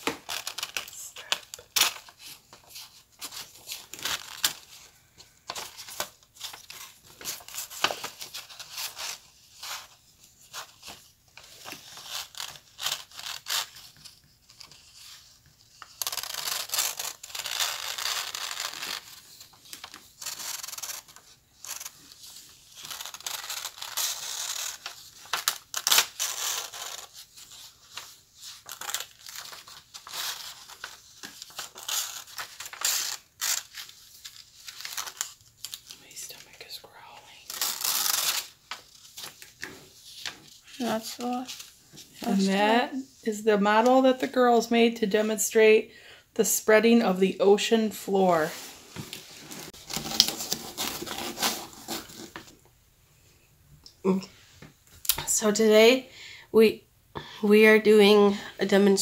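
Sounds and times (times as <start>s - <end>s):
paper crackling: 0.0s - 9.8s, 10.5s - 42.5s, 49.0s - 52.5s.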